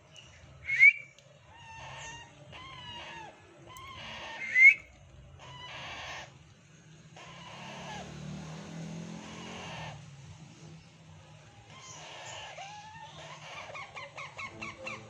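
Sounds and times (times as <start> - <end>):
parrot shrieking: 1.5 - 4.8, 5.4 - 6.4, 7.2 - 8.2, 9.2 - 10.1, 11.7 - 15.0
soft low parrot calls: 1.5 - 6.4, 11.7 - 15.0.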